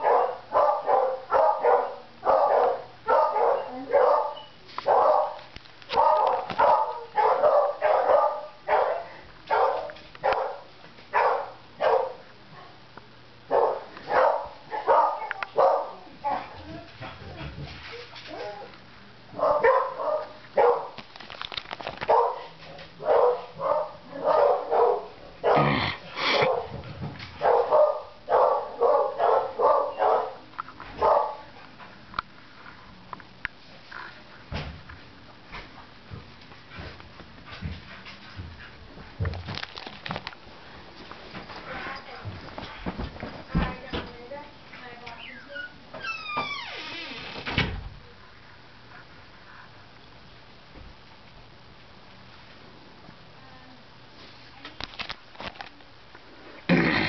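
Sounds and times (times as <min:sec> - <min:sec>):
dog barking: 0:00.0 - 0:12.2, 0:13.5 - 0:16.6, 0:19.4 - 0:21.0, 0:22.1 - 0:26.8, 0:27.4 - 0:30.4, 0:31.0 - 0:31.5.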